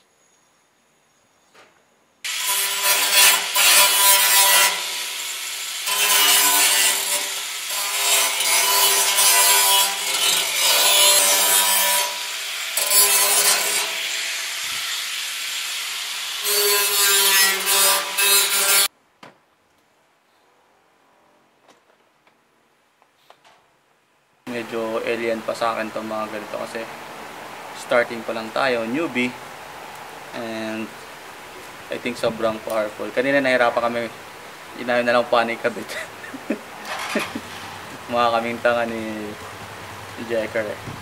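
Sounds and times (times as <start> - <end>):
angle grinder on metal: 2.3 - 18.9, 34.8 - 39.4.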